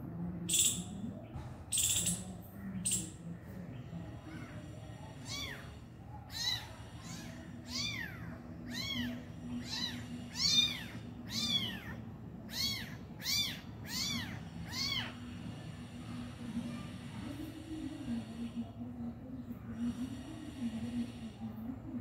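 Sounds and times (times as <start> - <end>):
kitten mewing: 6.3 - 15.2.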